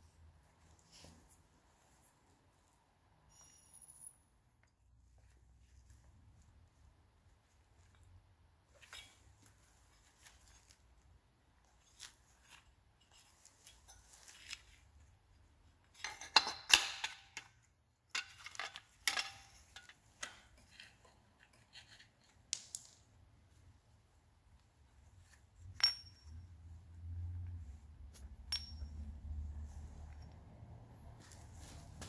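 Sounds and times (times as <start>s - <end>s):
metal parts clinking and clattering: 18.1s - 21.9s.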